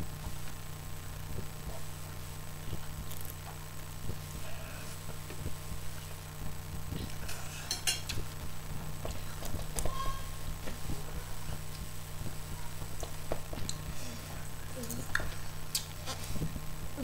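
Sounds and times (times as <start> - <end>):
electric fan humming: 0.0 - 17.0
fork clinking against plate: 7.3 - 8.2.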